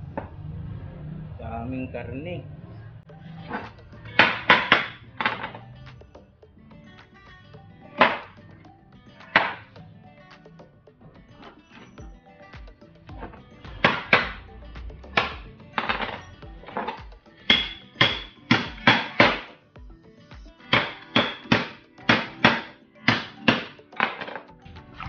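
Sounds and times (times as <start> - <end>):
cleaver chopping on wooden board: 8.0 - 8.3, 9.4 - 9.6, 13.7 - 14.4, 15.2 - 19.5, 20.7 - 24.2.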